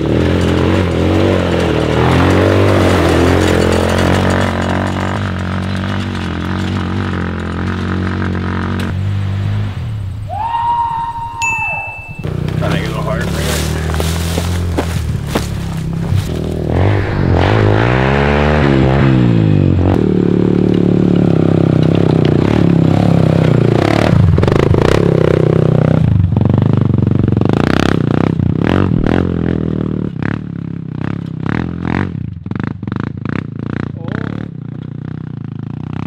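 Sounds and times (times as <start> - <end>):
gravel clattering under tyres: 0.0 - 9.5, 11.9 - 16.7, 19.9 - 27.6
atv engine revving: 0.0 - 10.9, 11.6 - 36.0.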